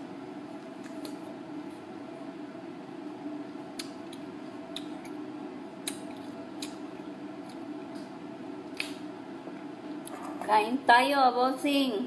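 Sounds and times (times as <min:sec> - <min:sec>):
ventilation fan humming: 0:00.0 - 0:12.0
chewing mouth sounds: 0:05.8 - 0:07.7.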